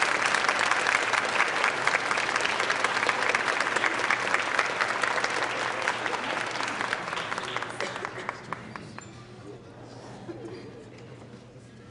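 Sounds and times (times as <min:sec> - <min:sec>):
crowd applauding: 0:00.0 - 0:09.0.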